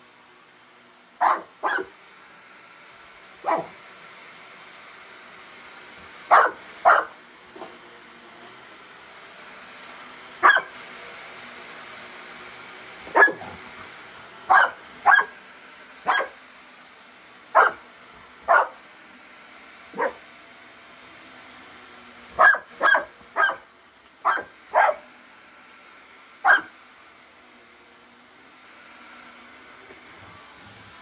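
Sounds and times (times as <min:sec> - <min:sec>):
large dog barking: 0:01.2 - 0:01.9, 0:03.4 - 0:03.7, 0:06.3 - 0:07.1, 0:10.4 - 0:10.7, 0:13.1 - 0:13.6, 0:16.1 - 0:16.3, 0:17.6 - 0:17.8, 0:18.4 - 0:18.8, 0:22.4 - 0:23.6, 0:24.3 - 0:25.0, 0:26.4 - 0:26.7.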